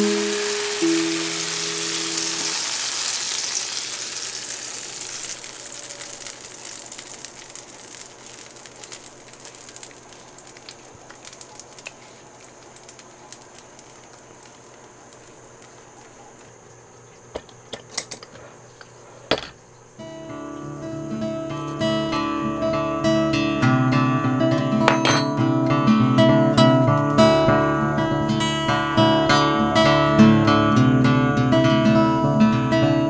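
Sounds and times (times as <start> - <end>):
batter sizzling in a skillet: 0.0 - 16.5.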